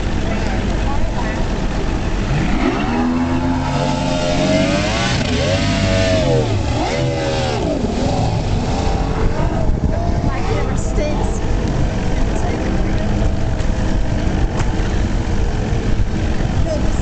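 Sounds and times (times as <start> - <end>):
outboard motor accelerating: 0.0 - 17.0.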